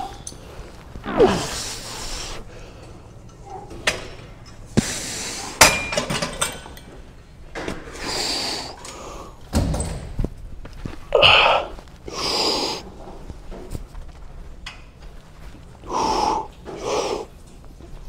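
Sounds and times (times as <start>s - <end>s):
breathy exhale: 1.2s - 3.0s, 15.9s - 17.3s.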